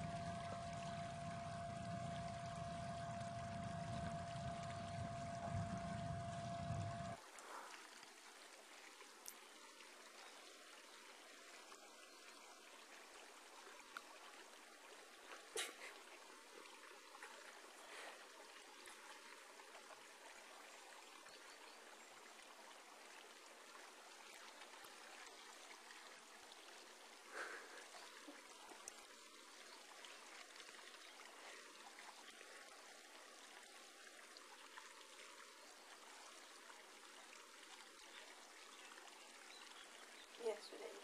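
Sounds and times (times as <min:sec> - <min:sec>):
faint steady hiss: 0:00.0 - 0:41.0.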